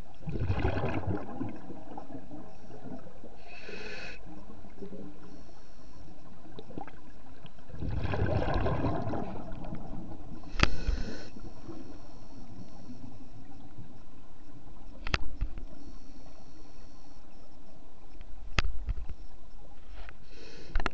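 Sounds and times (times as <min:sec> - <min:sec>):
regulator exhalation bubbles underwater: 0:00.2 - 0:02.2, 0:07.7 - 0:10.8.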